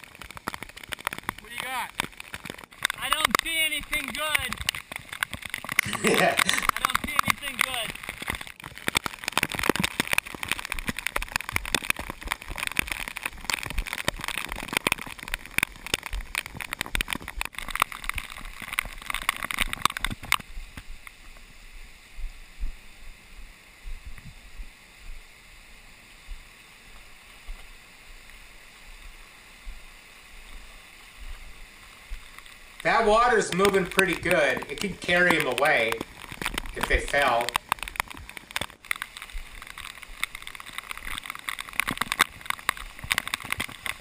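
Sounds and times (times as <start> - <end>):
flood water rushing: 0.0 - 13.7, 29.8 - 44.0.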